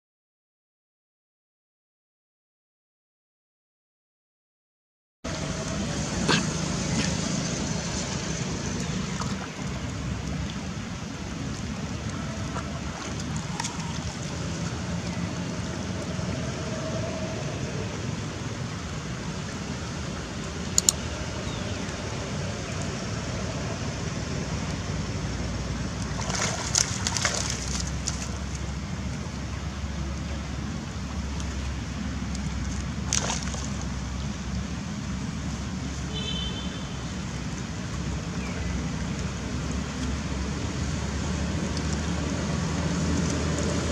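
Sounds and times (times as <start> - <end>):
water sloshing and splashing: 5.3 - 36.0
low outdoor rumble: 5.3 - 43.9
sharp splashes: 25.9 - 28.7, 32.4 - 34.2.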